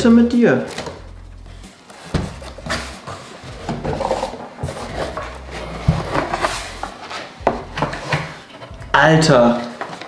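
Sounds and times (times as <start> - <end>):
cardboard scraping and rubbing: 1.5 - 8.8.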